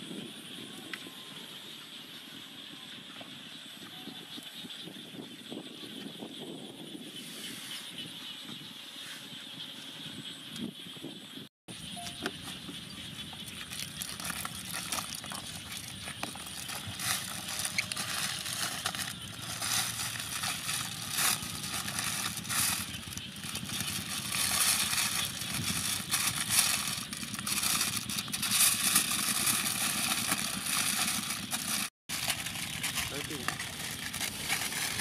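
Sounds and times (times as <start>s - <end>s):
aluminium foil crinkling: 13.4s - 35.0s.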